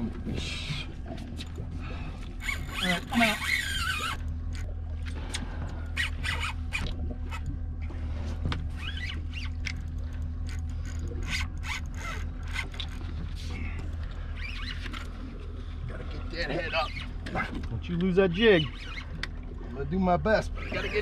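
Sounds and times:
steady low hum: 0:00.0 - 0:21.0
reel and rod squeaks and clicks: 0:02.2 - 0:15.5, 0:16.4 - 0:19.5, 0:20.4 - 0:21.0
fishing reel cranking: 0:02.3 - 0:04.7, 0:05.3 - 0:07.5, 0:08.7 - 0:13.1, 0:18.5 - 0:19.3.

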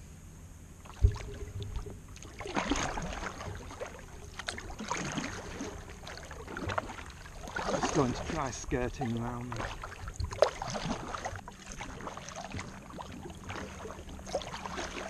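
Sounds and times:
paddle splashing in water: 0:00.8 - 0:15.0
water dripping: 0:00.8 - 0:15.0
low thump: 0:00.9 - 0:02.2.

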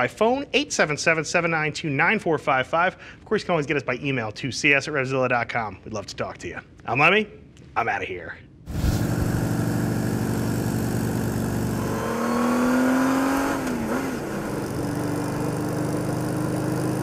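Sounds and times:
motorcycle engine revving: 0:08.7 - 0:17.0.

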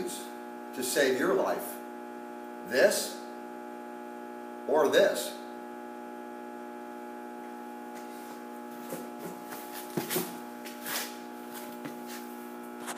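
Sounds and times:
electrical mains hum: 0:00.0 - 0:12.9.

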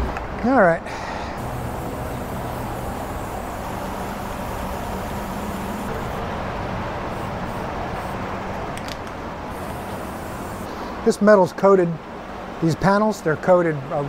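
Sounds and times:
steady low hum: 0:00.8 - 0:11.2
aerosol spray can hissing: 0:01.4 - 0:06.2, 0:09.5 - 0:10.7.

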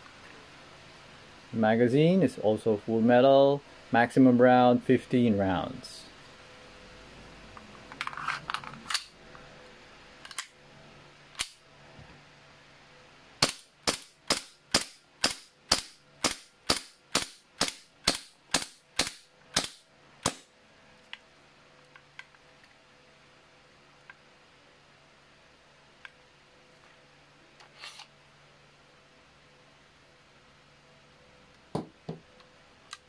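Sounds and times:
airsoft pistol shots: 0:13.4 - 0:20.5.

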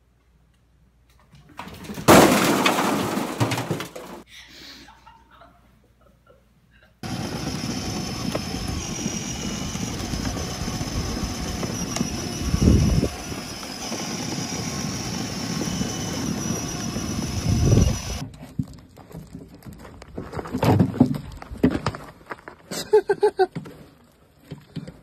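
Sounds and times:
toy motor humming: 0:07.0 - 0:18.2
plastic wheels rumbling on asphalt: 0:07.0 - 0:22.6.

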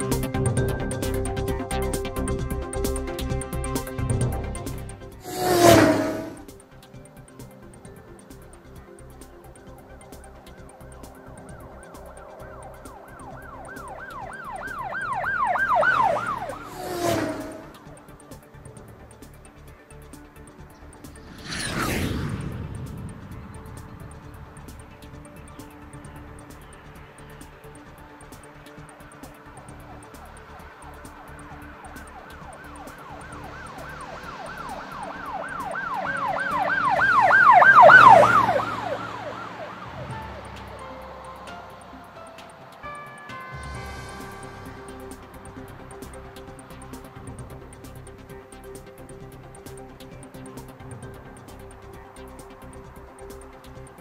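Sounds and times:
music with ticking beat: 0:00.0 - 0:05.2, 0:06.5 - 0:16.5, 0:17.8 - 0:21.2, 0:23.8 - 0:38.1, 0:39.9 - 0:54.0
electronic siren yelping: 0:11.3 - 0:17.8, 0:32.0 - 0:40.9.

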